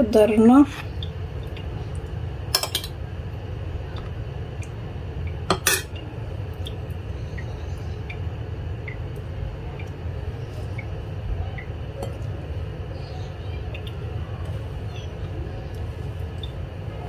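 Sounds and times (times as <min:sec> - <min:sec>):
steady low hum: 0:00.0 - 0:17.0
cutlery clinking on a plate: 0:05.5 - 0:05.9.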